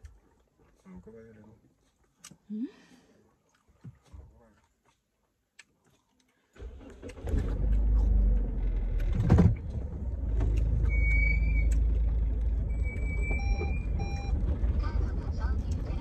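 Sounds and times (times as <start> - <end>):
car engine starting and running: 6.6 - 16.0.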